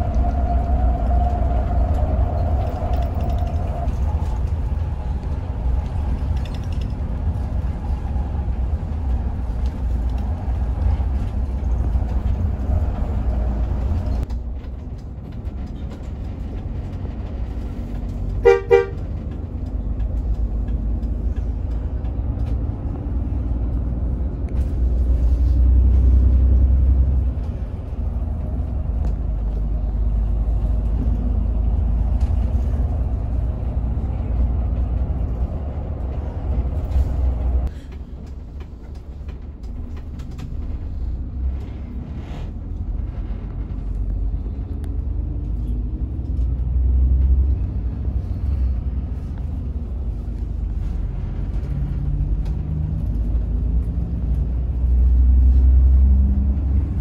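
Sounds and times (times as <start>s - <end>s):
diesel engine drone: 0.0s - 57.0s
road noise: 0.0s - 57.0s
horn toots: 18.4s - 19.1s.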